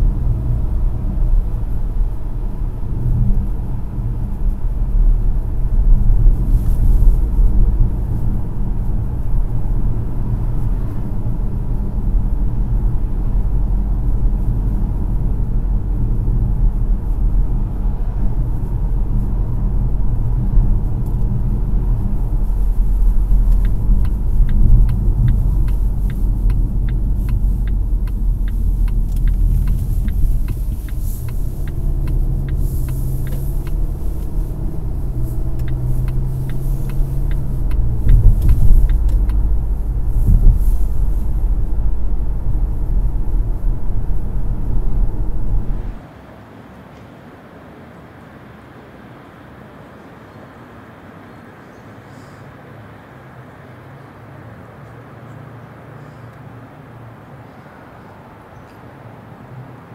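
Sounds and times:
road and engine rumble in car: 0:00.0 - 0:59.9
light evenly spaced ticks: 0:20.8 - 0:41.3.

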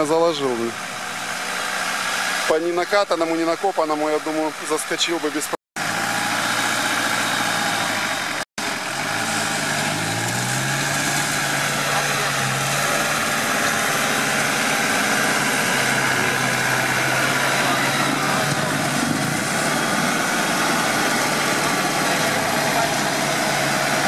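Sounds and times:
engine revving under load: 0:05.8 - 0:24.0.

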